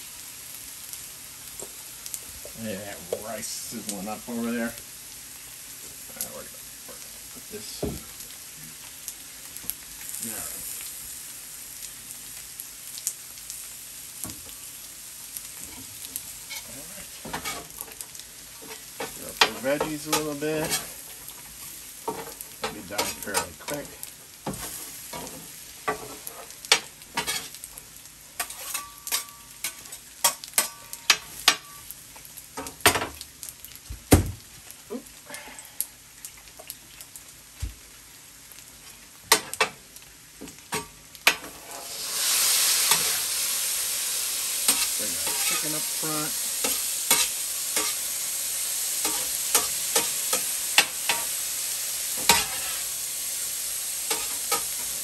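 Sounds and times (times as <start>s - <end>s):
food sizzling on griddle: 0.0s - 55.0s
metal spatulas scraping griddle: 19.4s - 20.9s, 28.4s - 29.3s, 44.7s - 46.0s, 52.2s - 52.9s.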